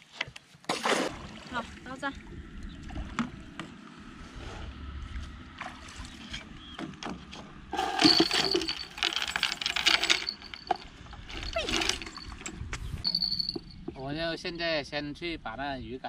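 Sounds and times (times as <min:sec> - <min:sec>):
water splashing around a raft: 0:00.6 - 0:02.2, 0:05.5 - 0:06.5
mooring line handling noise: 0:06.2 - 0:14.0.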